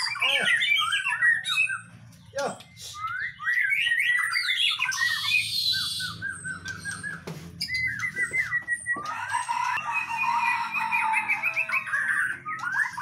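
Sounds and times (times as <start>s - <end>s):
harsh buzzy bird phrase: 0.0s - 1.1s, 2.3s - 3.0s
songbirds chirping: 0.0s - 13.0s.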